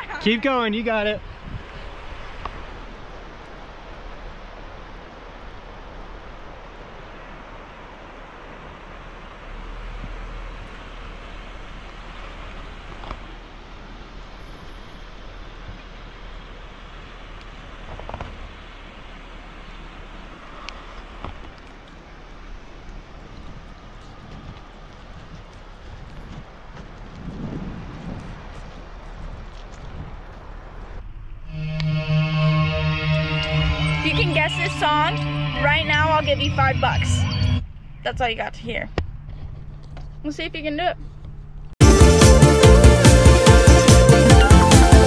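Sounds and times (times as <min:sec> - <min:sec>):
car engine and tyres rumbling: 0:00.0 - 0:45.0.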